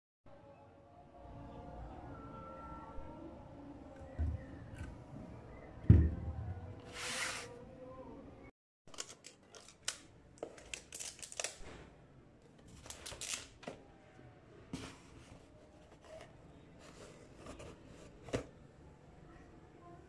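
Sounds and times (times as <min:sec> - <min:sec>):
light clicks and crinkles: 0:08.9 - 0:11.7.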